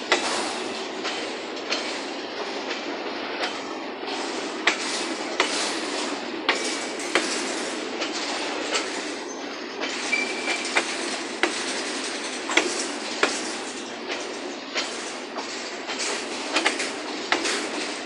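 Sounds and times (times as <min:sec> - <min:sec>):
steel wheels rolling on rail: 0:00.0 - 0:18.0
wheels clacking over rail joints: 0:00.0 - 0:18.0
wheel squeal: 0:10.1 - 0:10.7.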